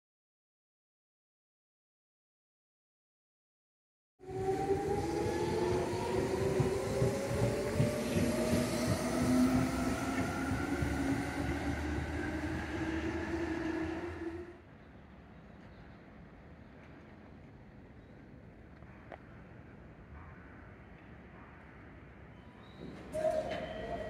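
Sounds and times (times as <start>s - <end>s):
train traction motors whining: 4.2s - 14.6s
low train rumble: 4.2s - 20.5s
wheels clicking on rail: 4.6s - 14.5s.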